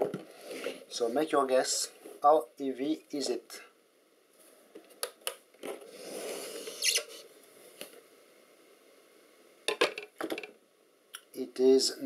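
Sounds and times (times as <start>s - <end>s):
short sharp squeak: 6.6s - 7.2s.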